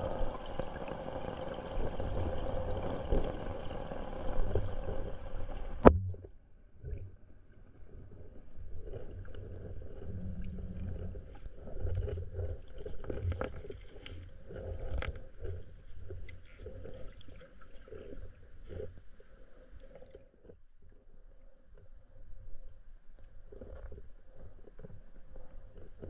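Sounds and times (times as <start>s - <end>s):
muffled underwater rushing: 0.0s - 7.2s.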